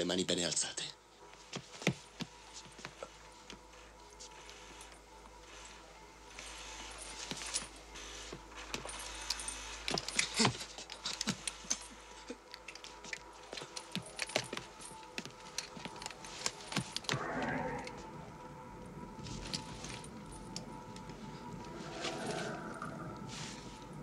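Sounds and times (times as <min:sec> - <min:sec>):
faint steady hum: 0:00.0 - 0:24.0
light clicks and metallic clinks: 0:01.8 - 0:17.2, 0:19.2 - 0:21.8.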